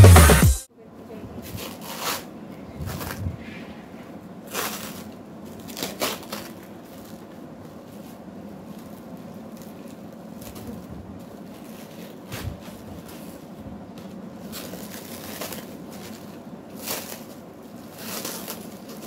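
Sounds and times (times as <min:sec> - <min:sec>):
plastic wrapping crinkling: 0:04.4 - 0:19.0.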